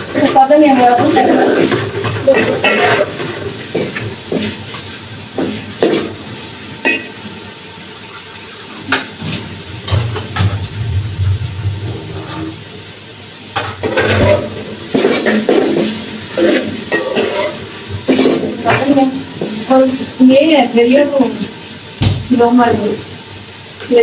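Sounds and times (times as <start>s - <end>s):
soft sizzle: 0.0s - 24.0s
metal ladle scraping a pot: 13.9s - 18.5s.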